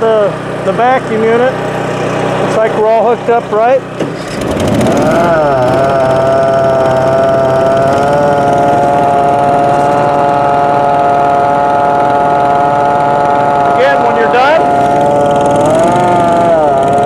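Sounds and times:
engine running: 0:00.0 - 0:17.0
vacuum pump high whine: 0:00.0 - 0:17.0.

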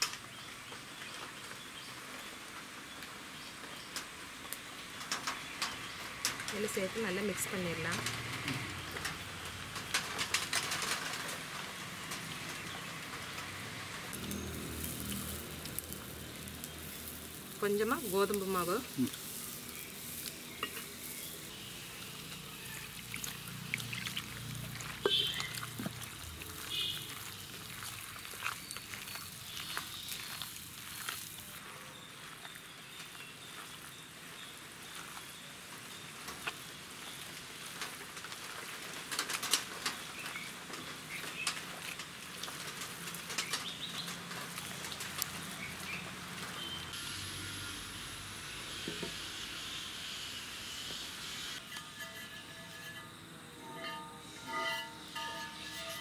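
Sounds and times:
hands mixing dough: 0:14.2 - 0:31.6
water pouring into flour: 0:22.6 - 0:31.3.

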